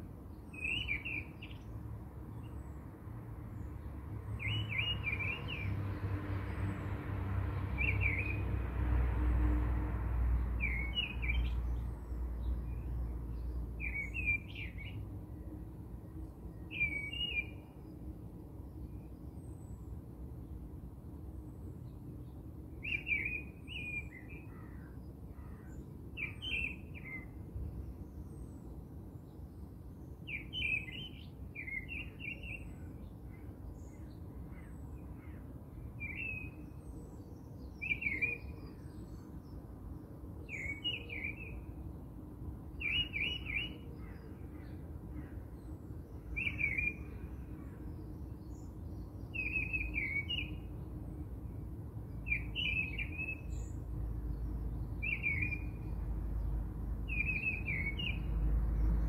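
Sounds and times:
bird chirping: 0.4 - 1.7, 4.3 - 6.6, 7.8 - 8.4, 10.6 - 15.5, 16.6 - 18.0, 21.8 - 24.8, 25.4 - 27.4, 30.2 - 35.4, 36.0 - 39.6, 40.5 - 41.7, 42.8 - 51.2, 52.1 - 59.0.

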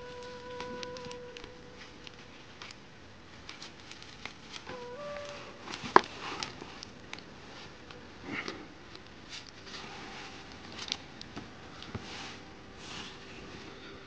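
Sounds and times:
hammock fabric rustling: 0.0 - 8.4, 9.1 - 14.0
small clicks: 0.2 - 2.8.

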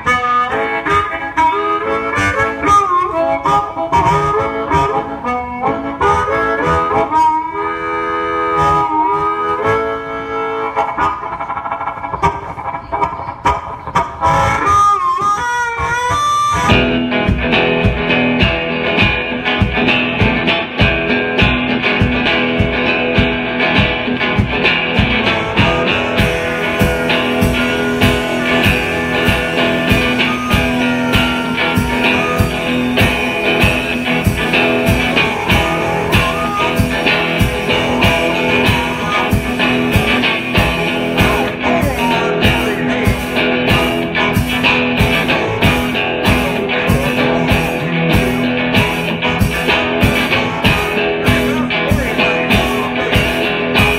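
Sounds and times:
amplified guitar tones: 0.0 - 53.9
amplified wailing harmonica: 0.0 - 53.9
drum kit beat: 16.6 - 53.9.

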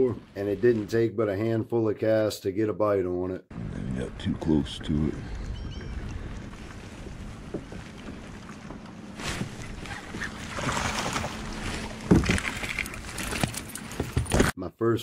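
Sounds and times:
wind on microphone: 4.7 - 8.4
water splashing: 5.9 - 13.5.

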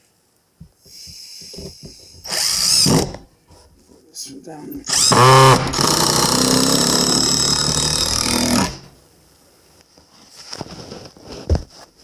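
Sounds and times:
power drill driving screw into wood: 2.2 - 3.3, 4.9 - 8.9.

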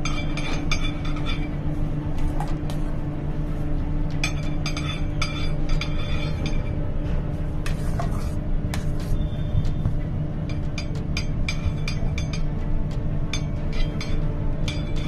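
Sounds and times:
metal spatula clinking and scraping: 0.0 - 1.7, 4.2 - 6.8, 13.3 - 15.0
steady low hum: 0.0 - 15.0.

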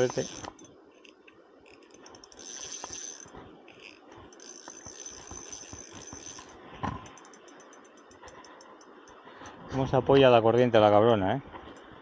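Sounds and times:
fishing reel clicking and whirring: 0.0 - 9.2.

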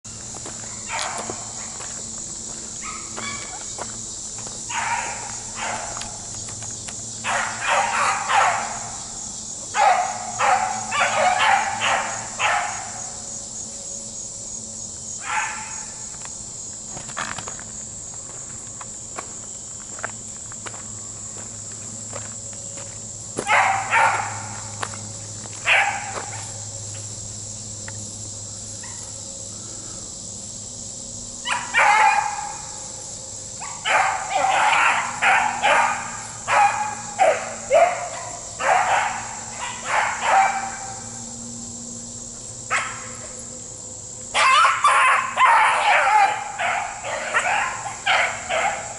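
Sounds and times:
insects chirring: 0.0 - 48.9
beagles baying: 7.2 - 9.1, 9.7 - 13.2, 23.4 - 24.9, 31.4 - 41.4, 44.3 - 48.9.

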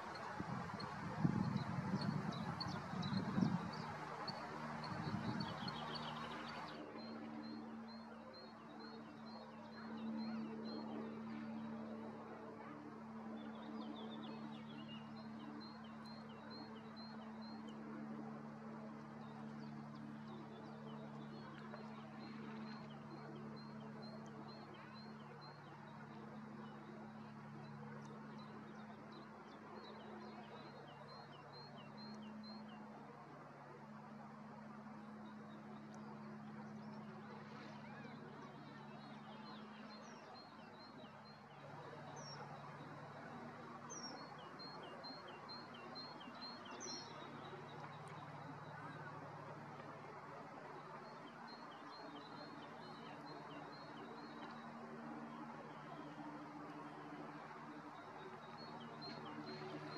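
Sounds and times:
steady low hum: 0.0 - 44.3
outdoor background noise: 0.0 - 59.9.

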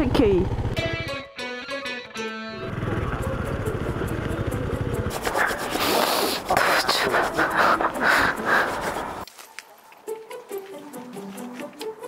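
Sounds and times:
motorcycle engine idling: 0.0 - 1.2, 2.6 - 6.5
rustling and scraping noise: 5.1 - 11.8.

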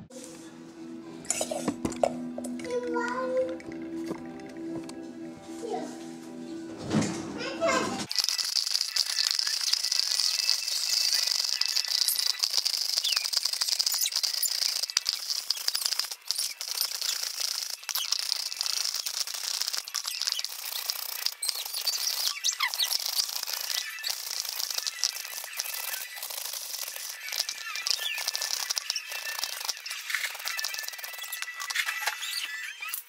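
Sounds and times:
potato scraping on grater: 9.2 - 32.6.

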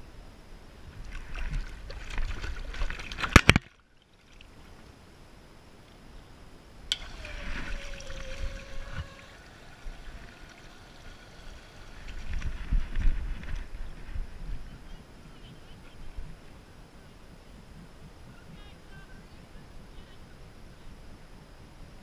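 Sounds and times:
water running with a hiss: 6.9 - 13.5.

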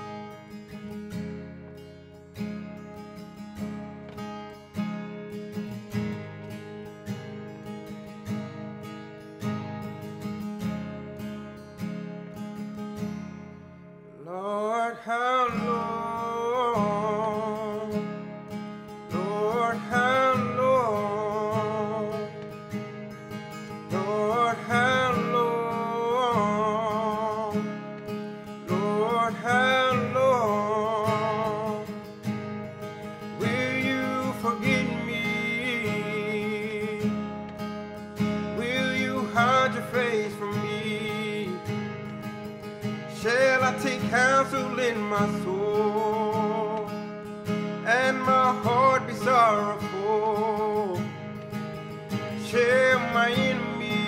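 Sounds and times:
acoustic guitar playing: 0.0 - 54.0
man singing worship song: 14.2 - 18.0, 19.1 - 22.3, 23.9 - 27.6, 28.6 - 32.0, 33.4 - 37.2, 38.5 - 41.7, 43.1 - 46.9, 47.8 - 51.0, 52.4 - 54.0.

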